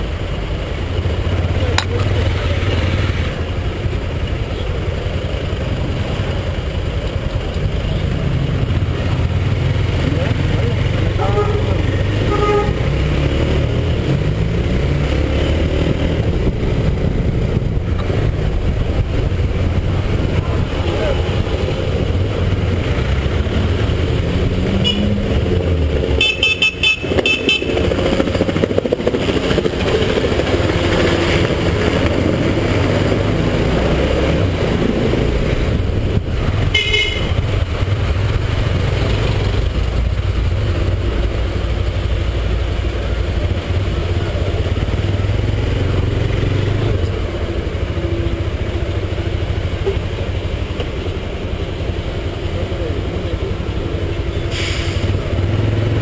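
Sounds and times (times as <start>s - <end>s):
motorcycle engine running: 0.0s - 33.6s
low wind rumble: 0.0s - 54.4s
street traffic: 0.0s - 56.0s
vehicle horn short toots: 12.3s - 12.8s, 24.8s - 25.1s, 26.2s - 27.8s, 36.7s - 37.3s.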